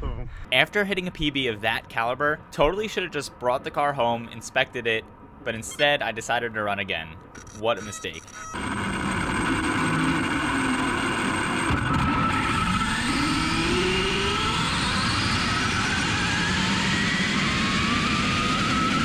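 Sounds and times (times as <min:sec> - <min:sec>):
rc car electric drive whining: 0:08.0 - 0:19.0.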